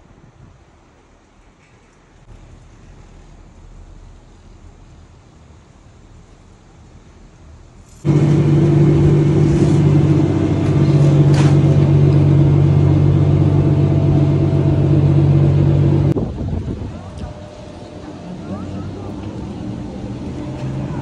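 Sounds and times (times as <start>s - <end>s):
machinery humming drone: 8.0s - 21.0s.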